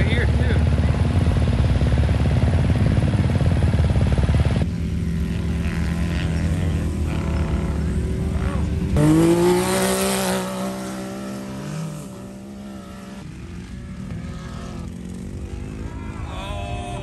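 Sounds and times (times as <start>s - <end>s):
distant engine drone: 0.0s - 17.0s
off-road vehicle engine passing: 0.0s - 17.0s
voices: 14.1s - 17.0s.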